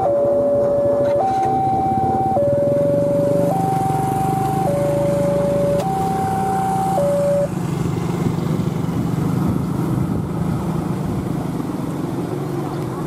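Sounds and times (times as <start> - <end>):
two-tone electronic warning signal: 0.0 - 7.6.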